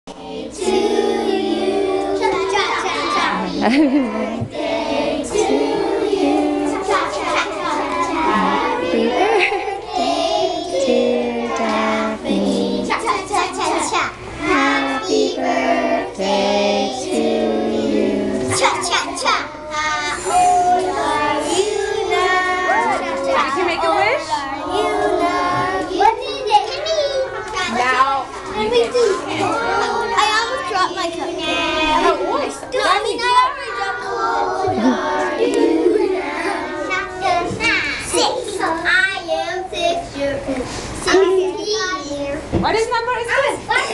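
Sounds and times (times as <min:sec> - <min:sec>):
children singing: 0:00.1 - 0:19.0, 0:19.7 - 0:23.6, 0:24.4 - 0:26.5, 0:33.2 - 0:38.8.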